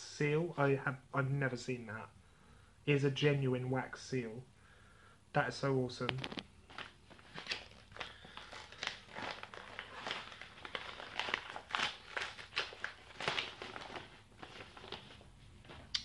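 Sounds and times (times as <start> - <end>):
paper wrapping crinkling: 6.0 - 15.9.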